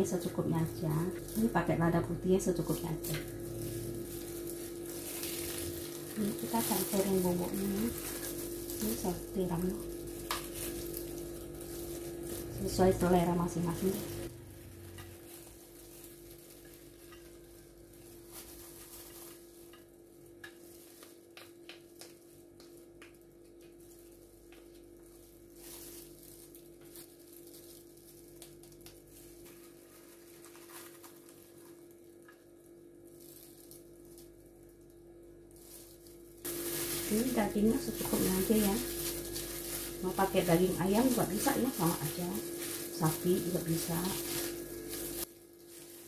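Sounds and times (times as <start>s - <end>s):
steady low hum: 0.0s - 46.0s
plastic spoon stirring in bowl: 2.6s - 12.6s.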